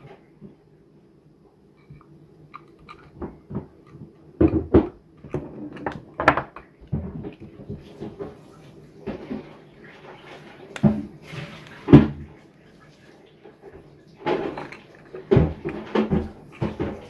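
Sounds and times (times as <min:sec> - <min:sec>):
tools clicking and clunking on desk: 0:01.8 - 0:07.5, 0:14.2 - 0:17.0.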